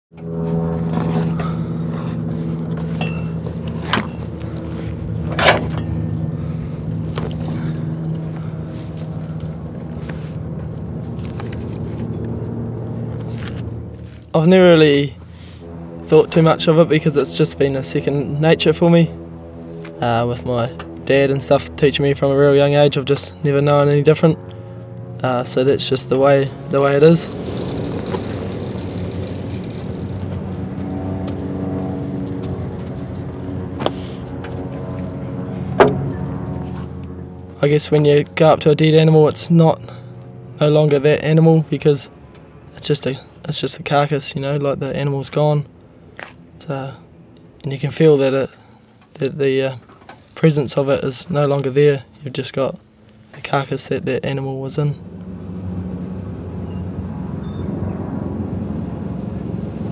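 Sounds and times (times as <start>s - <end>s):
motor humming: 0.1s - 14.4s, 15.1s - 37.6s, 54.9s - 59.9s
low drone of held tones: 0.1s - 59.9s.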